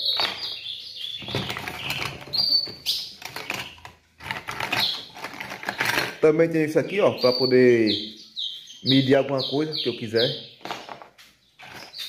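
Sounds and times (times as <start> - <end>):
bird chirps: 0.0 - 3.9, 4.6 - 5.8, 6.8 - 12.0
plastic cups clicking and clattering: 0.0 - 6.3, 10.6 - 12.0.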